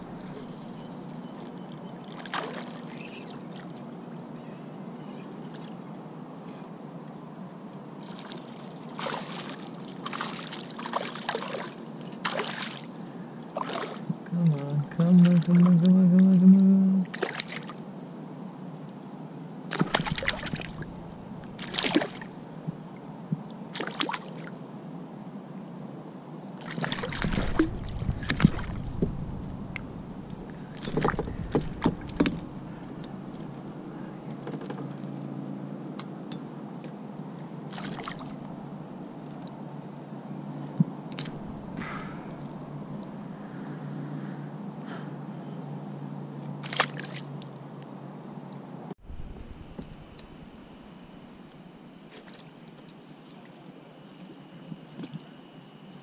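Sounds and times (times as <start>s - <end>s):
low steady hum: 0.0s - 56.0s
water splashing against a kayak: 2.1s - 3.7s, 8.0s - 12.9s, 13.6s - 14.1s, 17.1s - 17.7s, 19.7s - 22.4s, 26.6s - 33.8s, 37.7s - 38.4s, 46.6s - 47.3s.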